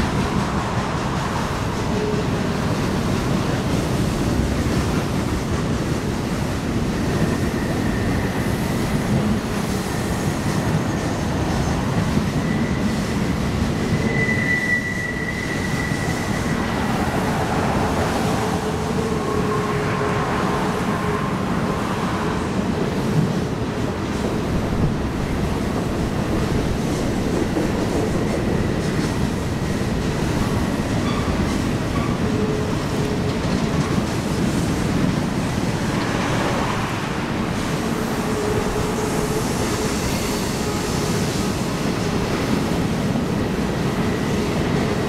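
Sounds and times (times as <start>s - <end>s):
train wheels rumbling on rail: 0.0s - 45.0s
wheel flanges squealing: 12.3s - 17.2s.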